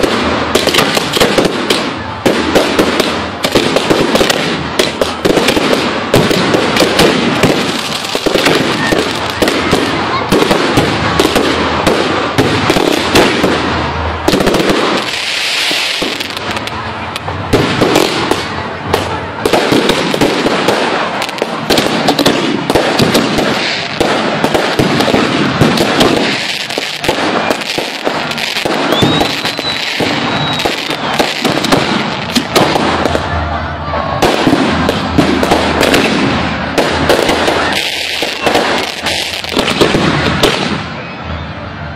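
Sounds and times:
firework hiss: 0.0s - 33.2s
fireworks crackling and popping: 0.0s - 41.1s.

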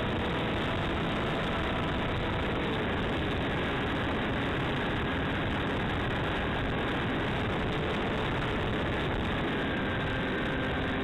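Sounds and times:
electric motor and propeller whine: 0.0s - 11.0s
wind hiss over microphone: 0.0s - 11.0s.

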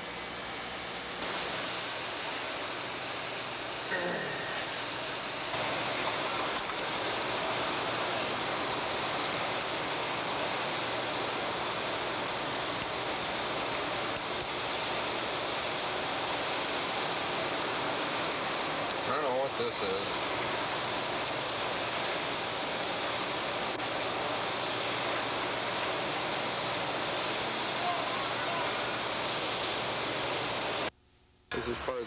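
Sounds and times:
large fan rushing: 0.0s - 30.9s.

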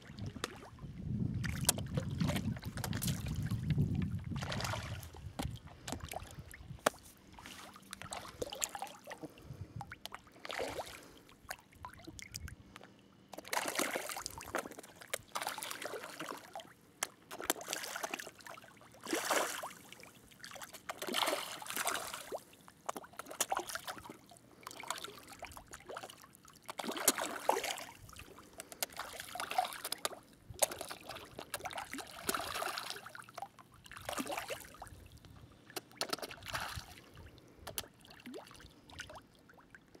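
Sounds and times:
water splashing: 1.4s - 12.4s, 13.4s - 34.9s.

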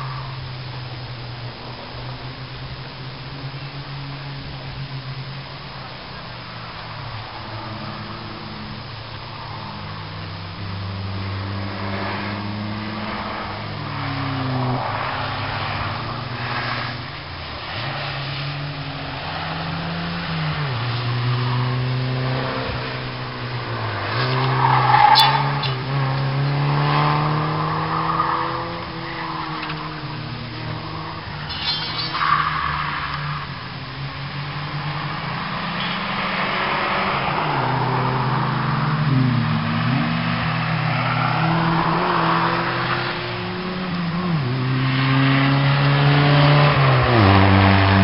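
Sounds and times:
car engine revving: 0.0s - 48.0s
tyres squealing: 27.8s - 33.6s.

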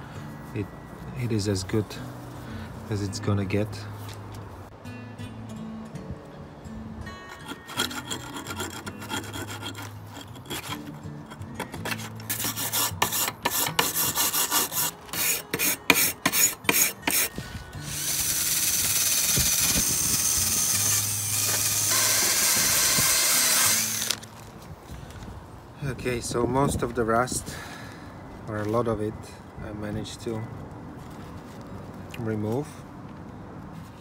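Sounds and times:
knife scraping metal: 7.2s - 17.3s
drill wire brush grinding: 7.2s - 24.3s
wire brush scrubbing metal: 7.3s - 24.1s.

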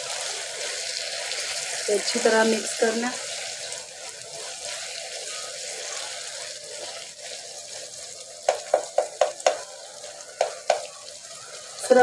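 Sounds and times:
meat sizzling in a pan: 0.0s - 12.0s
spatula stirring in a pan: 0.0s - 12.0s
spatula knocking against a pan: 8.5s - 9.6s, 10.4s - 10.9s.

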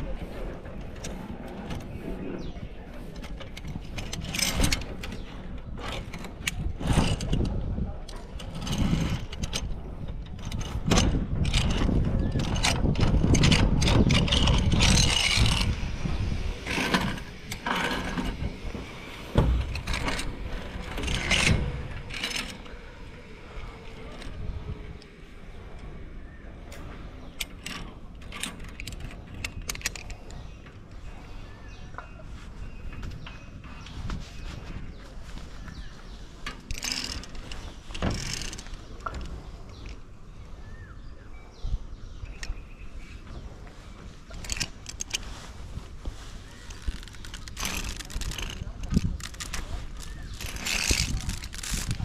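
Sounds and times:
rumbling: 0.0s - 31.6s, 43.2s - 52.0s
metal gear clinking and rattling: 3.1s - 22.8s, 46.6s - 52.0s.

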